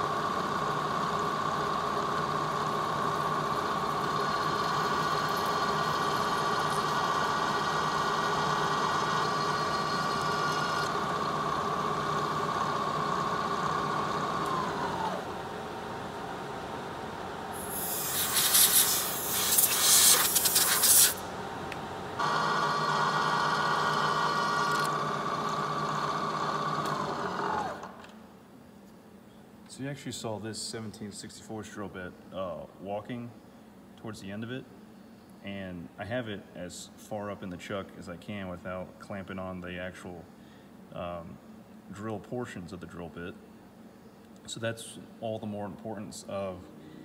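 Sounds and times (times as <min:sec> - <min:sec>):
milling machine spindle whine: 0:00.0 - 0:27.9
drill bit cutting metal: 0:03.9 - 0:11.0.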